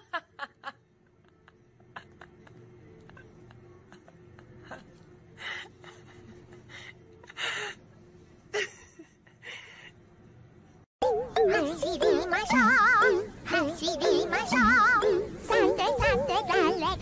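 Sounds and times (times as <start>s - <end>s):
faint steady hum: 0.0s - 17.0s
music with warbling sung tones: 11.0s - 17.0s.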